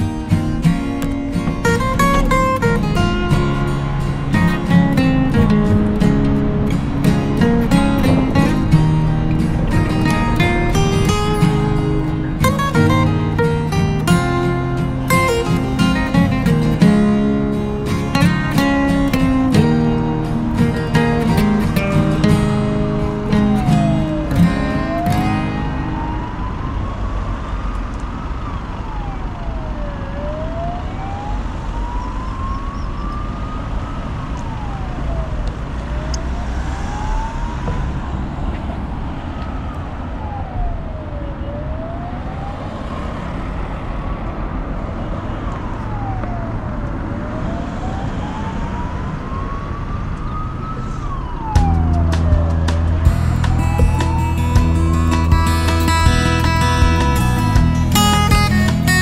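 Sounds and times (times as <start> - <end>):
strummed guitar music: 0.0 - 26.5, 51.6 - 59.0
low traffic rumble: 0.0 - 59.0
siren wailing: 0.0 - 59.0.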